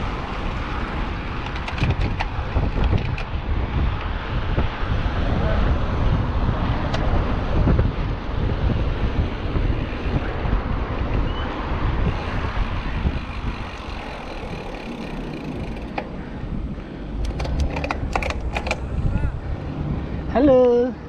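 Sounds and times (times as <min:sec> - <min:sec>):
road noise rumble: 0:00.0 - 0:21.0
wind buffeting microphone: 0:00.0 - 0:21.0
sharp clicks: 0:17.2 - 0:18.9.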